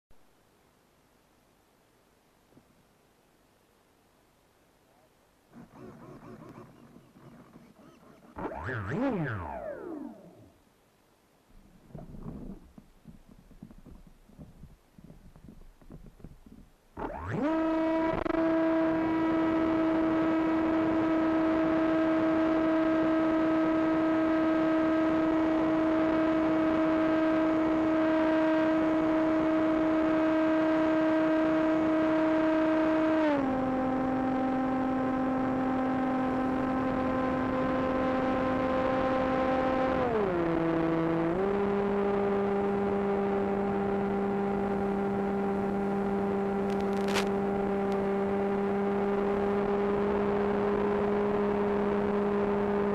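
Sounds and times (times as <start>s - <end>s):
electric motor and propeller whine: 5.6s - 10.6s, 17.0s - 52.9s.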